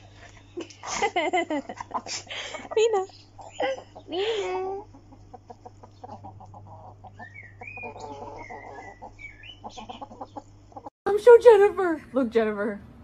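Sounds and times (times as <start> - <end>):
hens clucking softly: 1.7 - 10.9.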